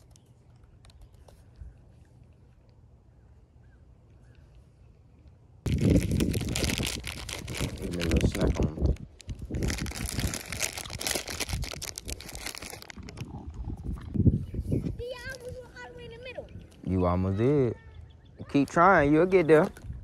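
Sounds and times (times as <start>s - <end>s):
plastic bag crinkling: 5.7s - 13.4s.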